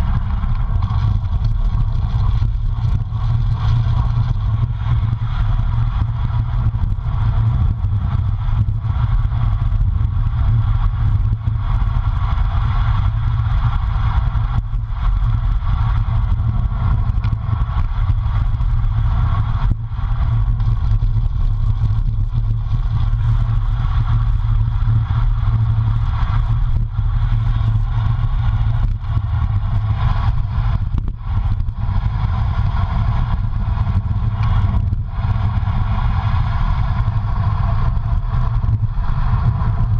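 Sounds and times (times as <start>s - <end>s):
tyre noise on asphalt: 0.0s - 39.9s
wind rumble on microphone: 0.0s - 39.9s.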